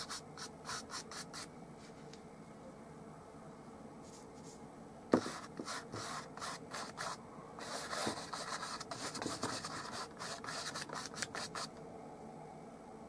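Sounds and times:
bristle brush scrubbing canvas: 5.2s - 11.7s.

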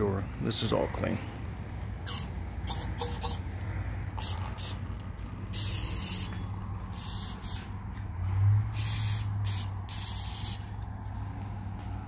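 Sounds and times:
aerosol spray hissing: 5.5s - 6.3s, 7.0s - 7.7s, 8.8s - 10.7s.

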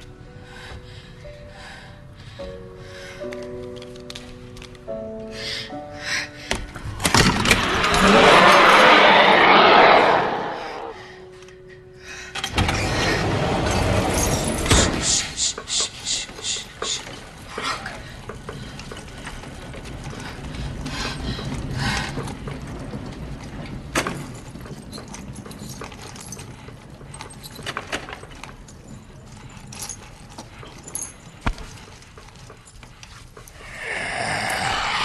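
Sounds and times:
faint clicks and rattles: 15.7s - 33.6s.

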